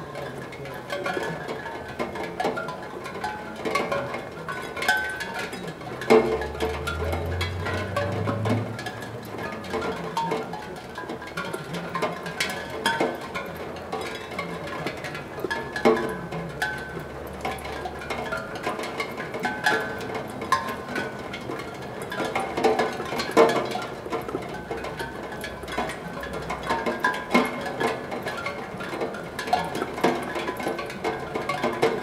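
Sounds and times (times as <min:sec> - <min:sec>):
raindrops pinging on steel pan: 0:00.0 - 0:32.0.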